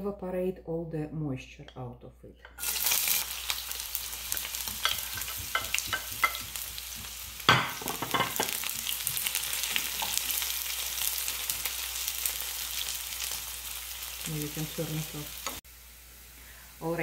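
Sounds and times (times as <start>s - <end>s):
onion sizzling in hot oil: 2.6s - 17.0s
spatula scraping a pan: 4.4s - 10.4s.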